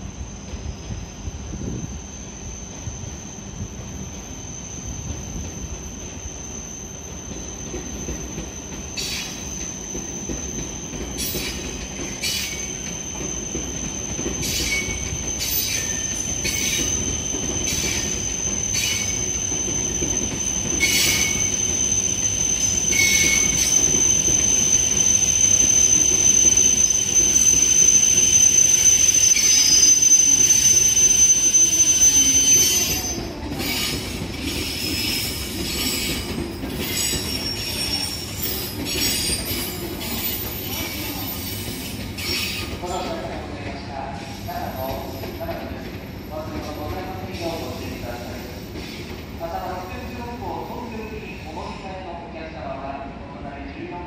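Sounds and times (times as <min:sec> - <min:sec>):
high-pitched train squeal: 0:00.1 - 0:52.1.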